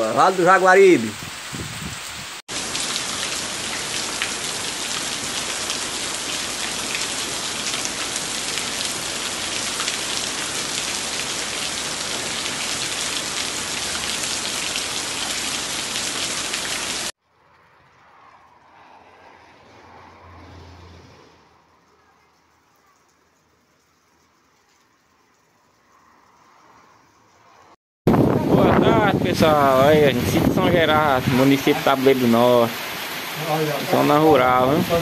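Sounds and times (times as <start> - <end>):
heavy rain on shrubs: 0.0 - 17.2, 28.1 - 35.0
patter of raindrops: 2.5 - 20.3, 21.4 - 27.8.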